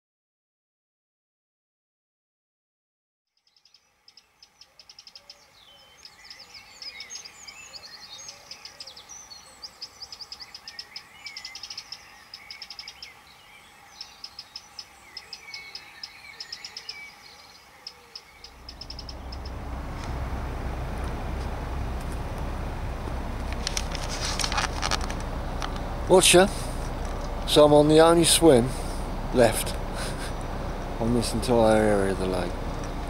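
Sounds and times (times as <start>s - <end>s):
songbirds singing: 3.3s - 33.0s.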